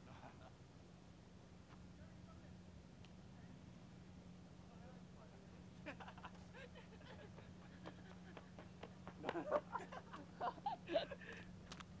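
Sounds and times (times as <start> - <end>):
faint human laughter: 0.0 - 0.6, 5.8 - 11.5
steady low hum: 0.0 - 12.0.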